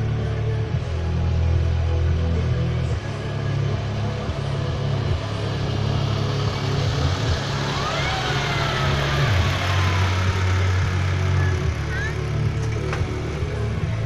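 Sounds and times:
truck diesel engine driving past: 0.0 - 14.0.

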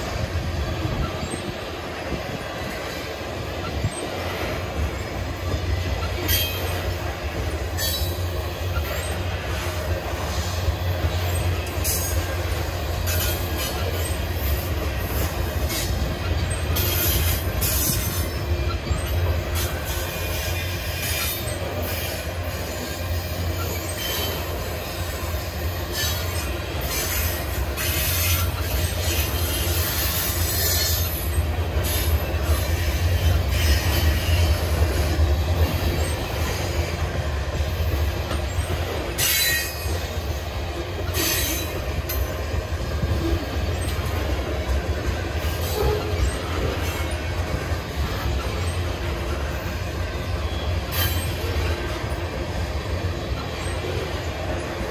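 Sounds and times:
steel wheels rumbling on rail: 0.0 - 54.9
high wheel squeals: 2.9 - 37.1, 38.3 - 40.4.

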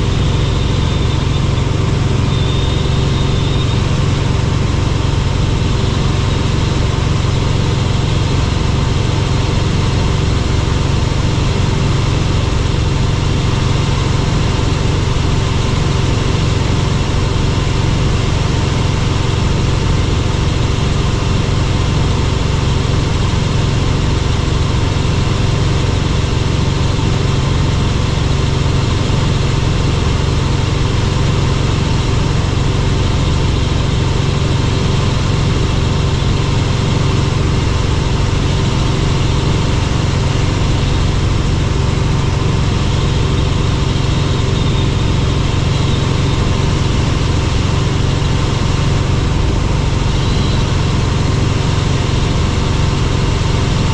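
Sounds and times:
faint high whistle: 0.0 - 4.0, 50.1 - 50.8
helicopter rotor drone: 0.0 - 53.9
steady hum: 0.0 - 53.9.

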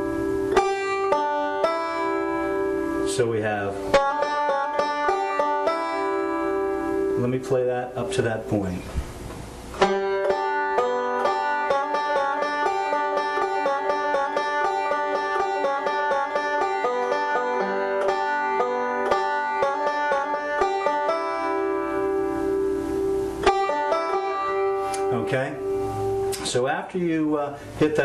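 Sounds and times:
banjo fingerpicked rolls: 0.0 - 8.8, 9.7 - 27.2.

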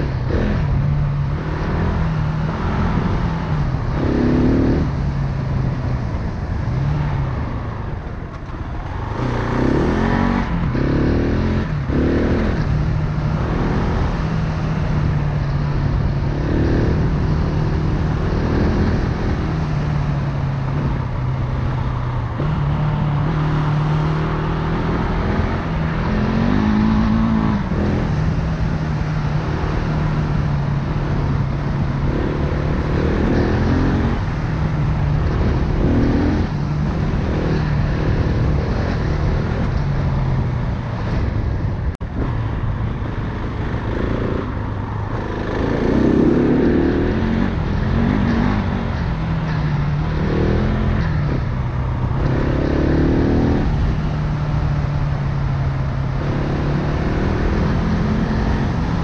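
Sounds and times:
dirt bike engine revving: 52.1 - 54.4.

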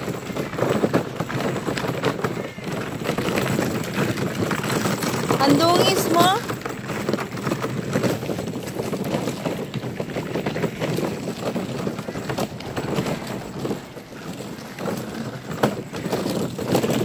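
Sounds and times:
wagon wheels rattling on gravel: 0.0 - 17.0.

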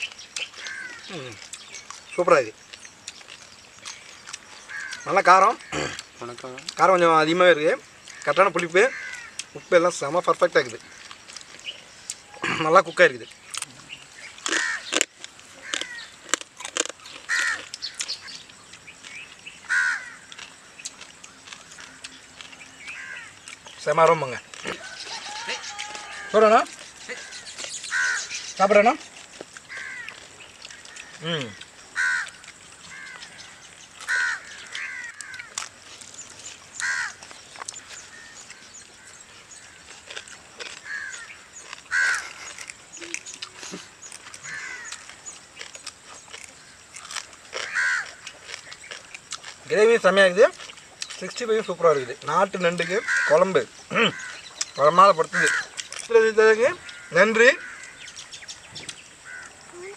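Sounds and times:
crow cawing: 0.6 - 1.4, 4.6 - 6.1, 8.1 - 9.5, 14.5 - 15.0, 15.6 - 16.2, 17.2 - 18.0, 19.6 - 20.5, 22.8 - 23.4, 24.6 - 28.5, 29.7 - 35.7, 36.8 - 42.4, 44.4 - 45.2, 46.6 - 48.3, 52.7 - 54.6, 55.3 - 55.8, 56.8 - 58.2, 59.2 - 59.6.

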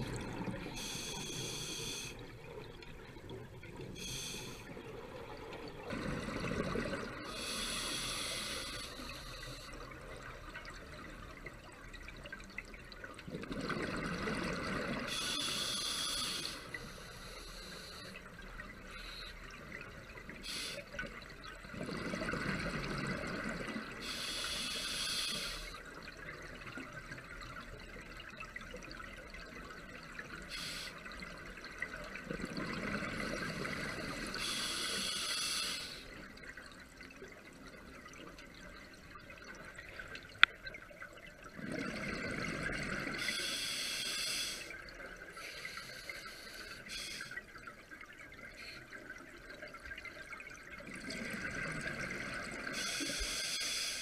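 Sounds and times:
steady water hiss: 0.0 - 54.0
scuba regulator breathing bubbles: 5.9 - 9.7, 51.0 - 54.0.

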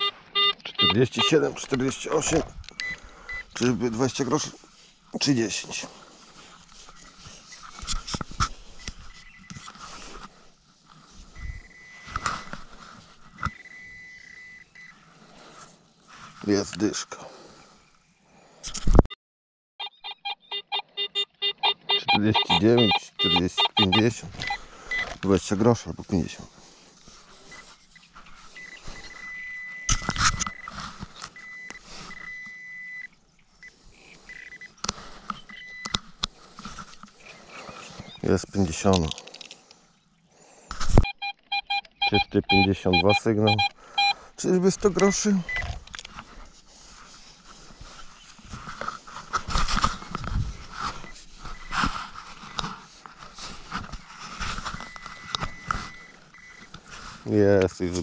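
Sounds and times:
metal detector tone: 0.0 - 4.1, 11.4 - 12.6, 13.4 - 15.0, 19.8 - 25.6, 28.4 - 33.1, 41.0 - 45.8, 54.6 - 56.8.

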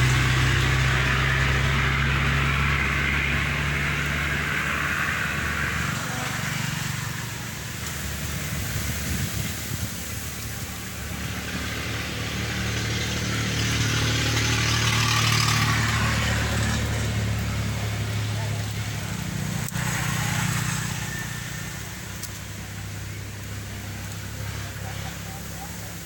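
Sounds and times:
motor engine humming: 0.0 - 26.0
hiss: 5.2 - 26.0.

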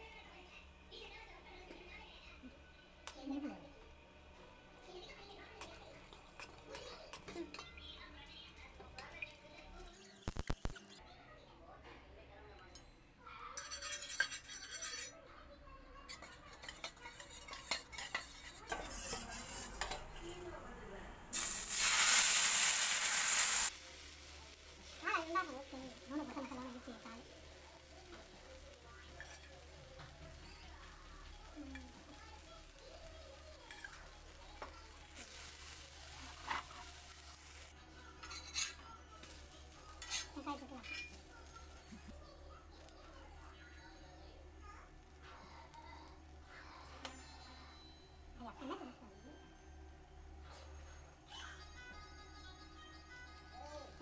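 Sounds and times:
batter sizzling loudly: 4.8 - 11.0, 16.2 - 20.0, 21.3 - 47.7
oil sizzling on hot pan: 4.8 - 11.0, 16.2 - 20.0, 21.3 - 44.1
spoon clinking and scraping bowl: 13.6 - 15.2, 16.1 - 20.1, 38.2 - 38.8, 40.0 - 41.2.

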